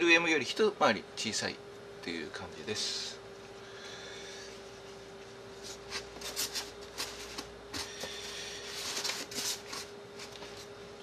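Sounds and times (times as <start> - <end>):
faint steady hum: 0.0 - 11.0
wrapping paper rustling: 5.6 - 10.7.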